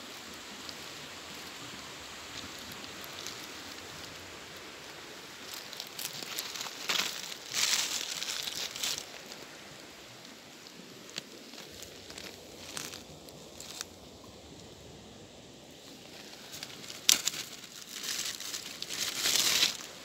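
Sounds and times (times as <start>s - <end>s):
creek water flowing: 0.0s - 20.0s
footsteps crunching on pebbles: 2.2s - 9.6s, 11.1s - 13.9s, 16.0s - 19.9s.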